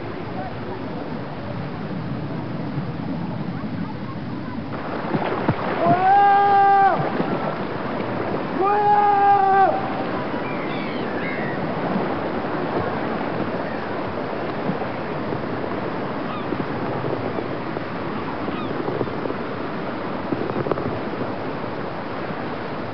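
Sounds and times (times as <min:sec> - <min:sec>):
sea waves and surf: 0:00.0 - 0:22.9
faint short high calls: 0:09.0 - 0:11.6.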